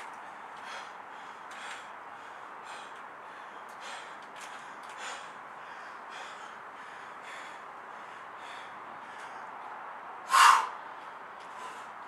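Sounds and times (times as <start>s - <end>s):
man breathing hard: 0.2s - 9.7s, 10.3s - 12.0s
loud sharp exhale: 10.3s - 10.8s.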